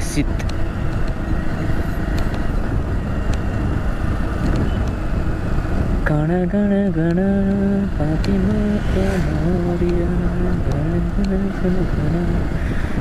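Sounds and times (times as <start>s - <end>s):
vehicle road and engine noise: 0.0s - 13.0s
person humming a slow tune: 6.1s - 12.6s.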